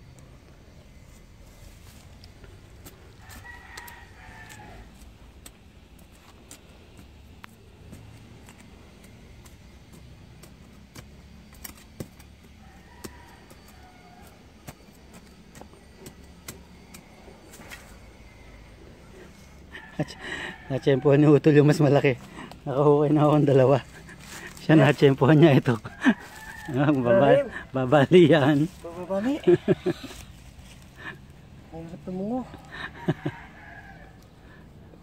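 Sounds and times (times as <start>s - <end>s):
rooster crowing: 3.1s - 5.0s, 12.4s - 16.1s, 16.7s - 22.5s, 23.7s - 31.2s, 32.3s - 34.6s.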